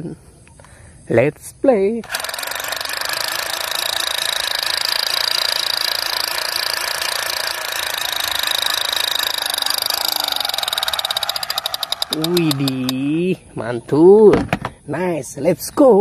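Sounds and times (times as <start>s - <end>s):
toy gun rapid-fire sound effect: 2.0s - 13.1s.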